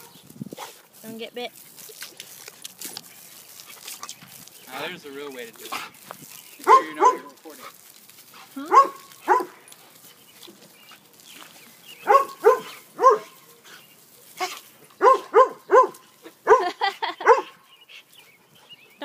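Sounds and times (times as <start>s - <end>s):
dog barking: 6.6s - 7.4s, 8.7s - 9.6s, 12.0s - 13.4s, 14.4s - 17.6s.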